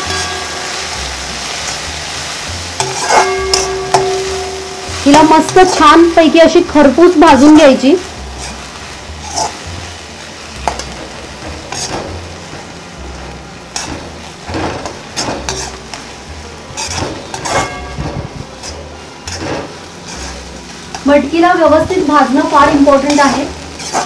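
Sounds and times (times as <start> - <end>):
beans sizzling in oil: 0.0 - 24.0
metal spatula scraping pan: 2.7 - 7.6, 8.2 - 9.6, 10.6 - 16.0, 16.7 - 21.1, 22.4 - 24.0.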